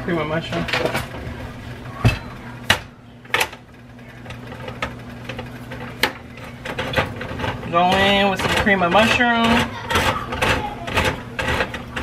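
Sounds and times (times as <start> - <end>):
can opener humming: 0.0 - 12.0.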